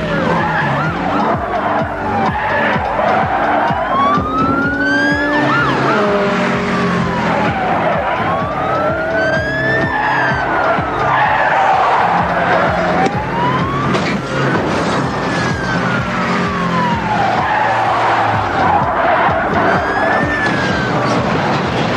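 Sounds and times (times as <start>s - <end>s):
background music: 0.0s - 21.9s
car engine: 0.0s - 21.9s
police siren wailing: 0.0s - 21.9s.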